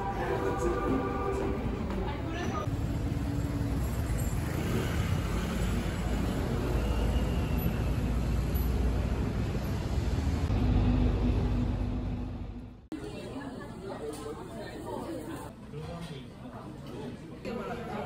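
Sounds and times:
street traffic hum: 0:00.0 - 0:12.9.

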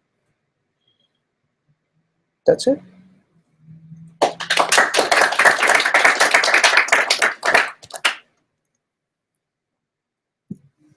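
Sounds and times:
applause: 0:04.2 - 0:08.3.

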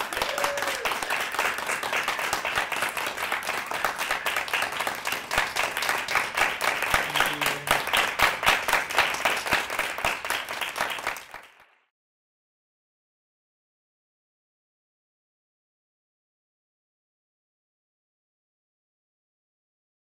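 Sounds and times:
audience applauding: 0:00.0 - 0:11.8.

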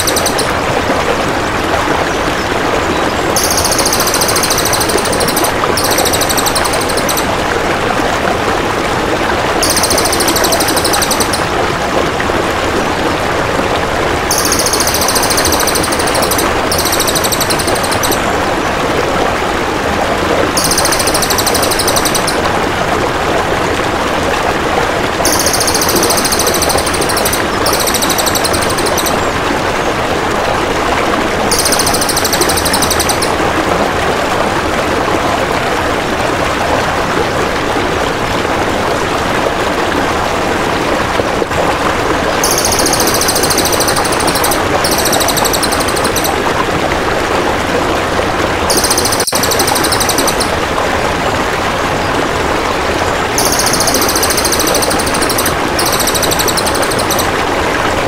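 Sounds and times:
jay rattling trills: 0:00.0 - 0:00.6, 0:03.4 - 0:07.3, 0:09.6 - 0:11.5, 0:14.3 - 0:18.3, 0:20.6 - 0:22.5, 0:25.3 - 0:29.2, 0:31.5 - 0:33.4, 0:42.4 - 0:46.4, 0:48.7 - 0:50.6, 0:53.4 - 0:57.4
flowing water: 0:00.0 - 0:58.0.

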